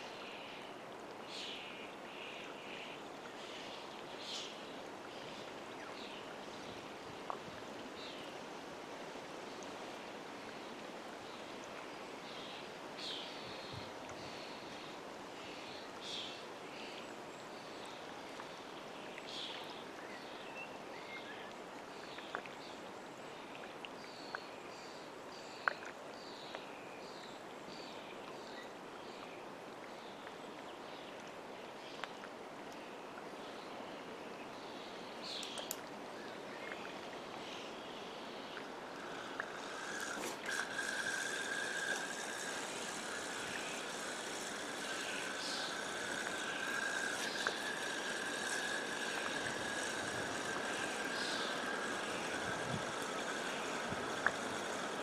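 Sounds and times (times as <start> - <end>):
water lapping at shore: 27.5 - 55.0
sharp clicks: 35.4 - 35.9
birds calling: 38.5 - 55.0.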